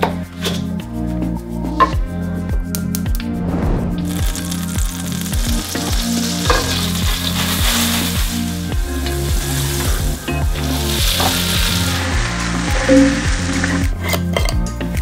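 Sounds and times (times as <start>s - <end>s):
butter sizzling in a pan: 4.1s - 13.9s
mushrooms frying: 4.1s - 13.9s.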